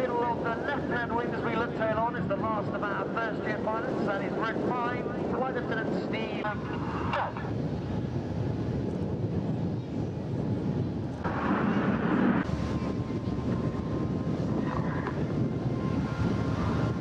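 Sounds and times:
jet aircraft flying past: 11.1s - 17.0s.

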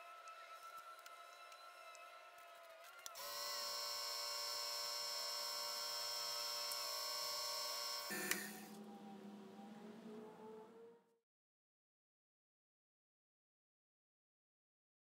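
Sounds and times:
lathe motor whining: 3.1s - 10.6s.

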